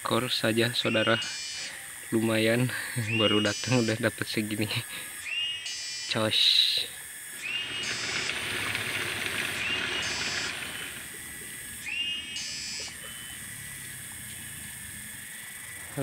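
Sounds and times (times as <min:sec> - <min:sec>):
running water hissing: 0:06.8 - 0:15.1
high whistled call: 0:07.4 - 0:11.1, 0:11.8 - 0:13.4.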